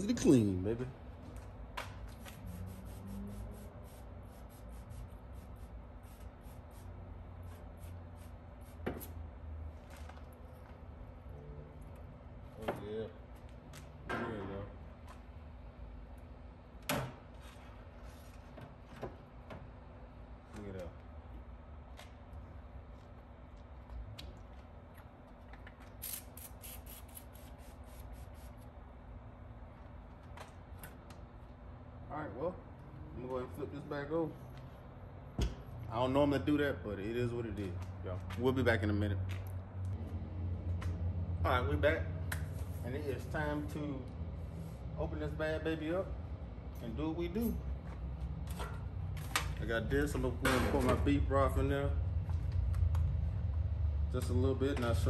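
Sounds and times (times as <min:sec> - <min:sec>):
spray bottle hissing squirts: 0:26.0 - 0:28.4.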